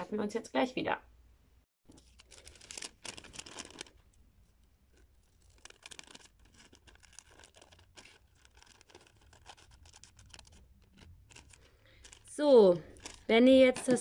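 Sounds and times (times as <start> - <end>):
paper rustling: 1.9 - 14.0
scissors snipping paper: 5.2 - 14.0.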